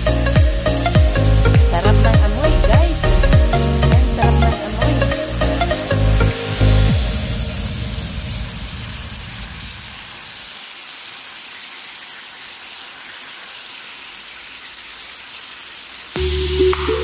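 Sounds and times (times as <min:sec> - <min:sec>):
meat sizzling on a griddle: 0:07.2 - 0:16.2.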